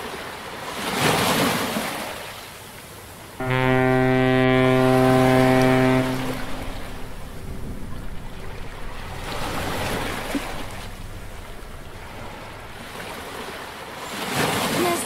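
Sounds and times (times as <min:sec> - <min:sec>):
low rumble: 0:03.4 - 0:13.9.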